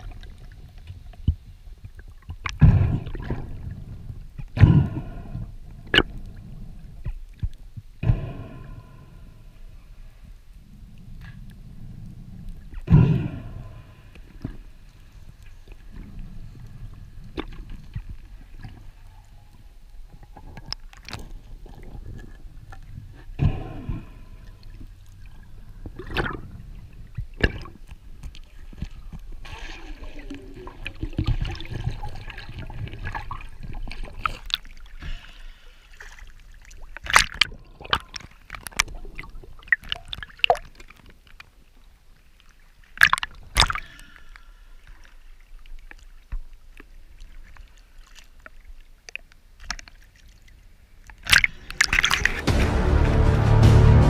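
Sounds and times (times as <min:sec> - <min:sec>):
muffled underwater water noise: 0:00.0 - 0:52.8
sharp splashes: 0:51.2 - 0:54.0.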